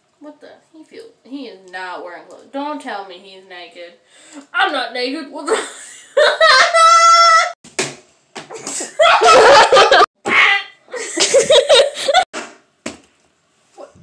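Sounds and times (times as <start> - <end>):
person laughing loudly: 6.2 - 7.3, 8.7 - 10.1, 10.9 - 12.2.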